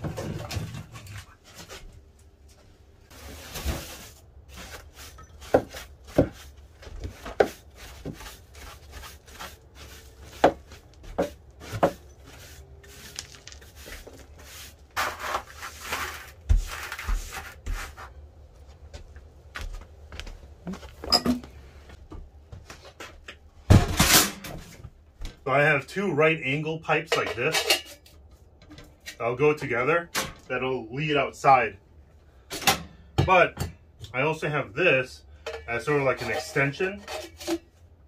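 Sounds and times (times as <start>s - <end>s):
knocks and clatter of objects: 0.0s - 2.0s, 20.6s - 25.4s
broom sweeping floor: 3.1s - 18.2s.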